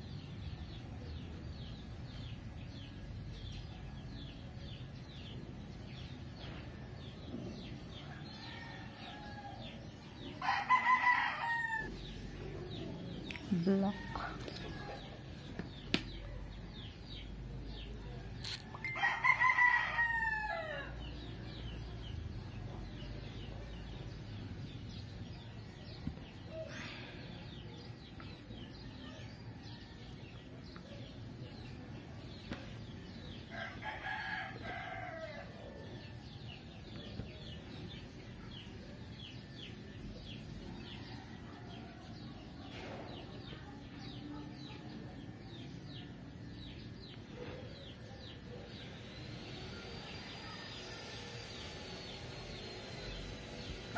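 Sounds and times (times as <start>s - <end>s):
rooster crowing: 10.4s - 12.0s, 18.8s - 21.0s, 33.5s - 36.0s.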